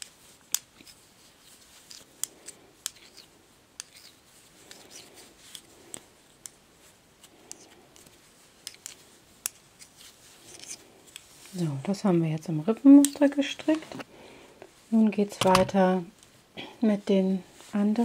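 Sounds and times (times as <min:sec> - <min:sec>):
metal knitting needles clicking: 0:00.0 - 0:01.0, 0:01.8 - 0:06.6, 0:07.4 - 0:09.9
yarn rustling: 0:00.0 - 0:14.0.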